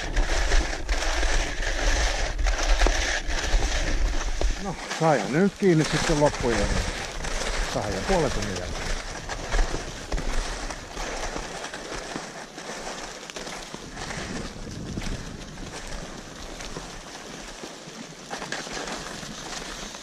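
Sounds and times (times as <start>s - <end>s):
sleds sliding over snow: 0.0s - 20.0s
wind on microphone: 13.8s - 16.2s.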